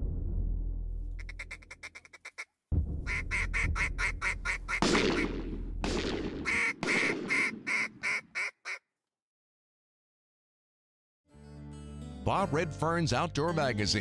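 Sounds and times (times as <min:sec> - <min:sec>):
duck quacks: 0:01.2 - 0:02.5, 0:03.1 - 0:05.3, 0:06.5 - 0:08.8.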